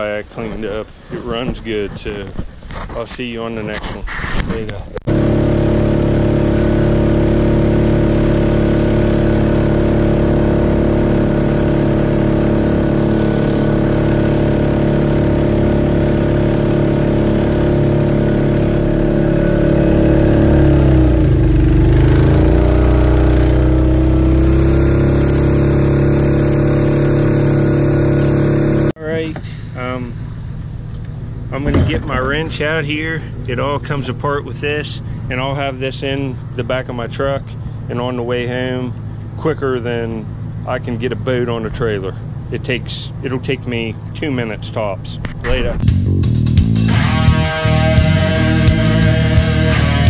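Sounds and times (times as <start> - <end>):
water rushing along hull: 5.1 - 28.9
small gasoline engine running: 5.1 - 29.0, 46.7 - 50.0.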